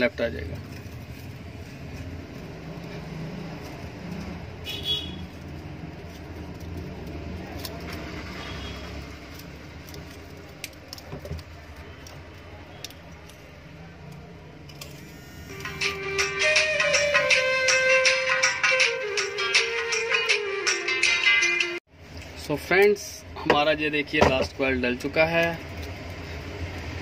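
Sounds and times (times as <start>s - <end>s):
wire rustling and clicking: 5.2s - 14.9s.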